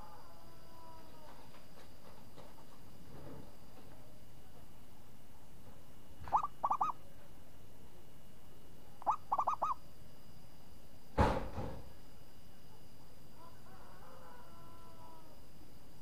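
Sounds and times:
dove cooing: 6.2s - 7.0s, 9.0s - 9.8s.

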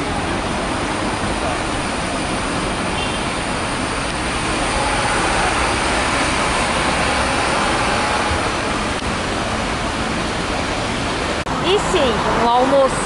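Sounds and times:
tyres hissing on wet road: 0.0s - 13.0s
vehicle engines: 0.0s - 13.0s.

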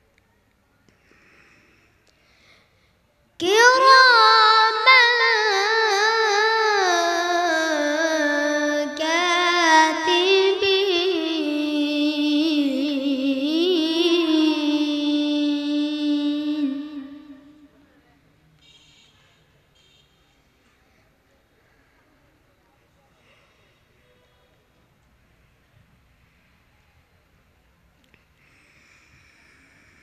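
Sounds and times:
boy reciting melodically: 3.4s - 17.8s.

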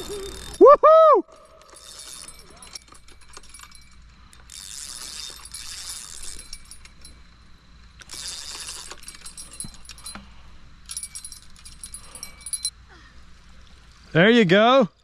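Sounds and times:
fishing reel clicker ratcheting: 0.0s - 0.6s, 1.4s - 7.1s, 7.9s - 10.2s.

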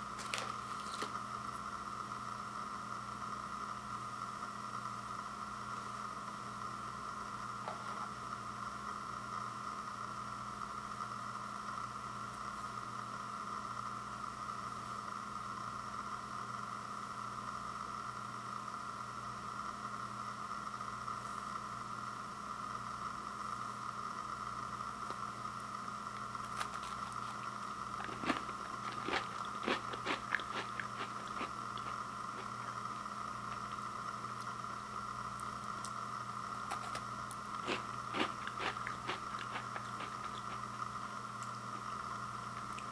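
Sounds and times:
cookie crunching: 0.0s - 1.2s, 26.2s - 34.6s, 36.6s - 42.9s
electrical hum: 0.0s - 42.9s.

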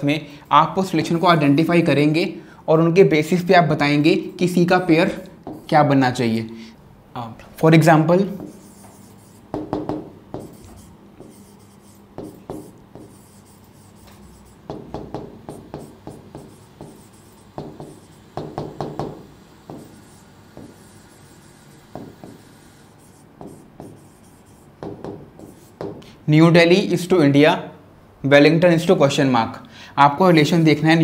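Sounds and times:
marker scratching on board: 5.4s - 5.9s, 8.3s - 26.1s.

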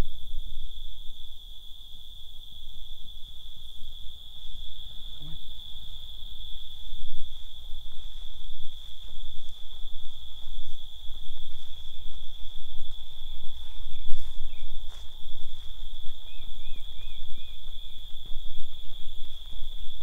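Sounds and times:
insects droning: 0.0s - 20.0s
handheld camera rumble: 6.6s - 20.0s.

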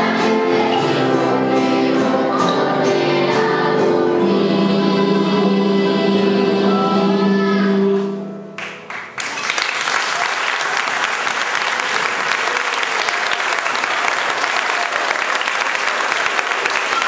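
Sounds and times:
audience applause: 8.6s - 17.0s.

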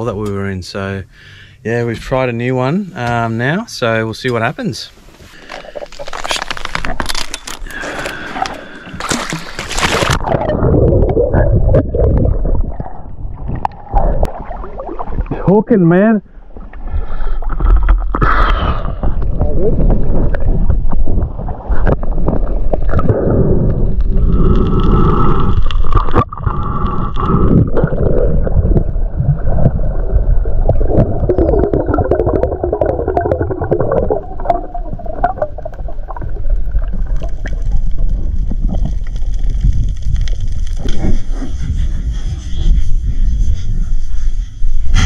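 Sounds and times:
muffled underwater gurgling: 10.0s - 15.5s, 16.5s - 39.4s.

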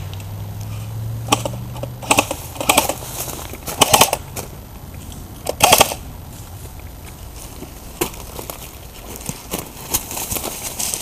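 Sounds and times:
airsoft rifle bursts: 3.8s - 4.2s, 5.5s - 6.0s.

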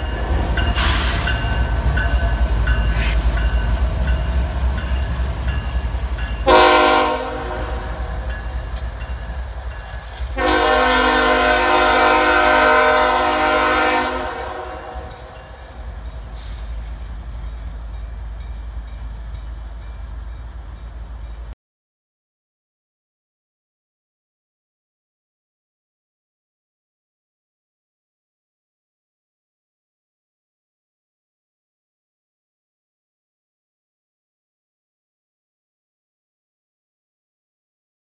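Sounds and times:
diesel locomotive engine rumble: 0.0s - 21.6s
locomotive air horn blasts: 6.4s - 8.2s, 10.4s - 15.3s.

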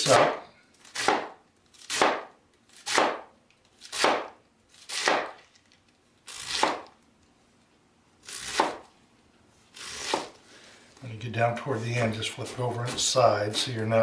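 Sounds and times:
knife slicing cabbage on board: 0.1s - 3.3s, 3.9s - 5.4s, 6.4s - 6.9s, 8.3s - 8.9s, 9.8s - 10.4s.

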